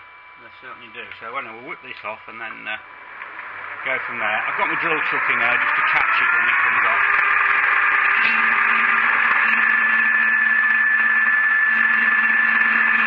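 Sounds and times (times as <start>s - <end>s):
metal lathe hissing and whining: 2.6s - 13.0s.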